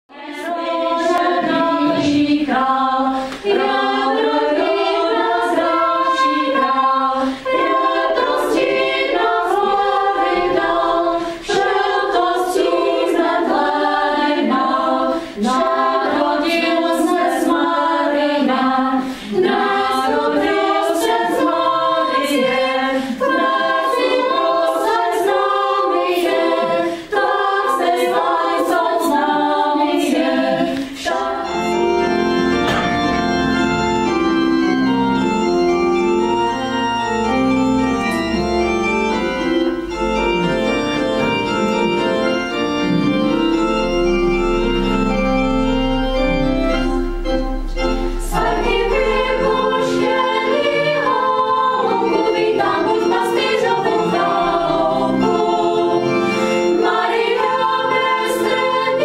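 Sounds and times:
women's choir singing: 0:00.1 - 0:35.4, 0:46.2 - 0:59.0.

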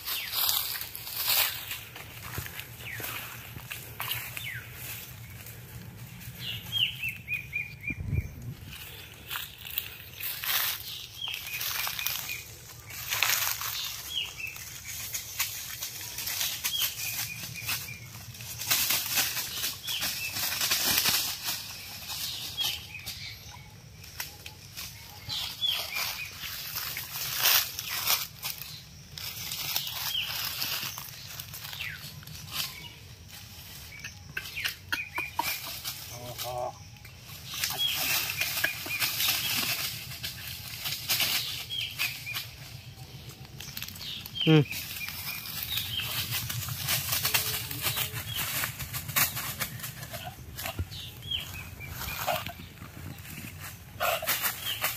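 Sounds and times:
rustling leaves and undergrowth: 0:00.0 - 0:54.9
bird chirps: 0:21.6 - 0:48.7, 0:49.3 - 0:54.9.

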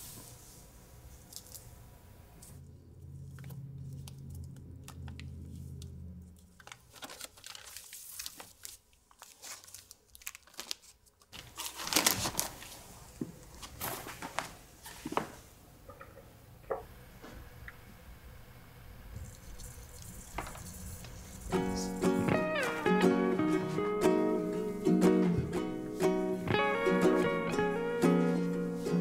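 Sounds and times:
paper and cardboard rustling: 0:06.4 - 0:15.4, 0:19.2 - 0:22.9.

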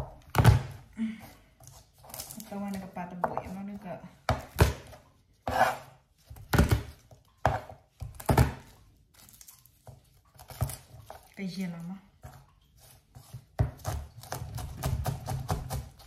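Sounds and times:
knife chopping on cutting board: 0:04.3 - 0:08.7, 0:13.2 - 0:16.0.

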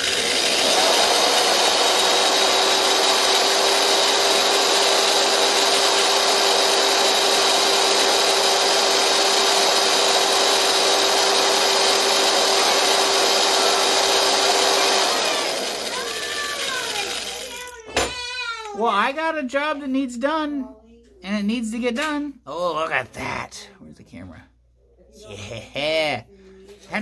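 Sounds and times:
electric drill whine: 0:00.0 - 0:17.7.

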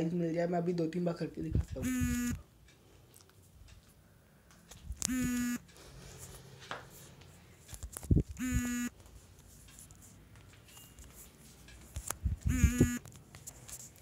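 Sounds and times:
phone buzzing: 0:01.8 - 0:02.4, 0:05.0 - 0:05.7, 0:08.3 - 0:09.0, 0:12.4 - 0:13.1.

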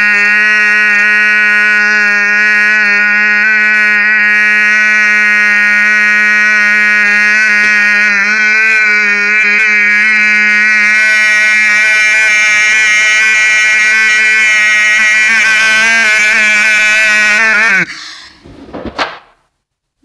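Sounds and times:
young man shouting long note: 0:09.6 - 0:17.7
short breathy sound: 0:17.9 - 0:18.5.

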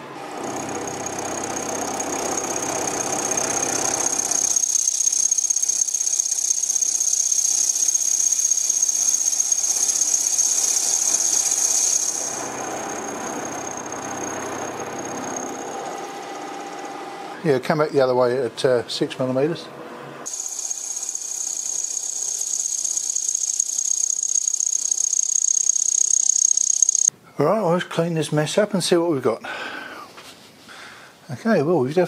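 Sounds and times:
milling machine cutting steel: 0:00.1 - 0:05.9, 0:09.0 - 0:17.4
high-pitched whine: 0:01.1 - 0:17.0, 0:20.3 - 0:27.1.

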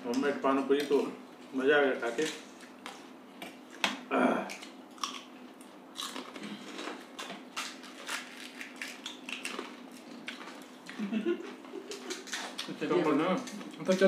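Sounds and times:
crisp shells cracking and crunching: 0:06.0 - 0:10.6.

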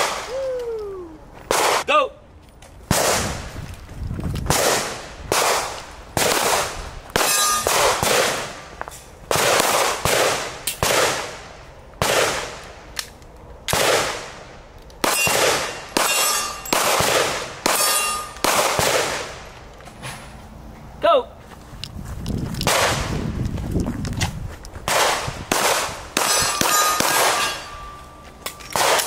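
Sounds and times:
pistol shots: 0:01.5 - 0:01.8, 0:02.9 - 0:03.4, 0:04.5 - 0:08.6, 0:09.3 - 0:12.6, 0:13.7 - 0:14.4, 0:15.0 - 0:19.4, 0:22.7 - 0:23.2, 0:24.9 - 0:27.8, 0:28.7 - 0:29.0
steel target clanging: 0:07.2 - 0:07.8, 0:15.1 - 0:16.8, 0:17.7 - 0:18.4, 0:26.2 - 0:29.0.

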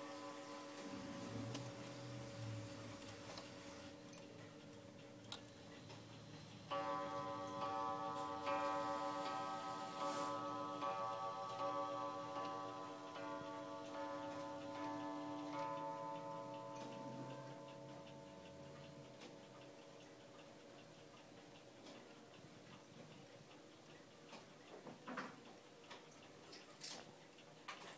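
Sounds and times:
wall clock gong ringing: 0:00.0 - 0:05.0, 0:06.7 - 0:20.4
clock mechanism clicks: 0:00.0 - 0:27.9
clock ticking: 0:00.0 - 0:27.9.

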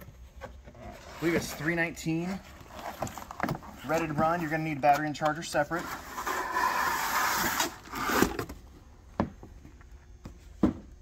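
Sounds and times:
cardboard scraping: 0:00.5 - 0:04.4, 0:05.7 - 0:08.5.

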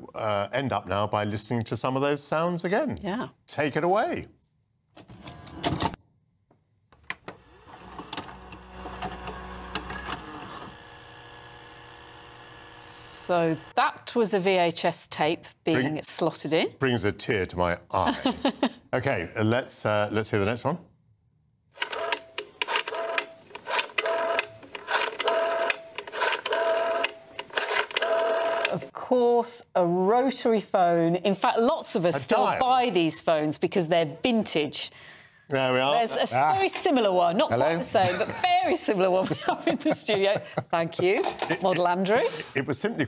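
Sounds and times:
video recorder motor whirr: 0:07.3 - 0:13.9, 0:21.8 - 0:28.9.

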